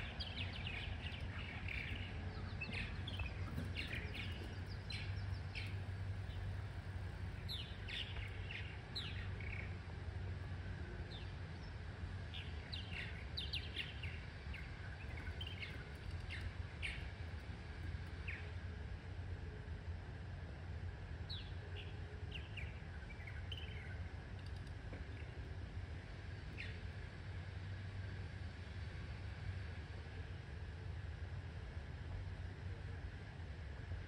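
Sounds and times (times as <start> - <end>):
purple martins chirping: 0.0 - 6.7, 12.4 - 17.1
low steady rumble: 0.0 - 34.0.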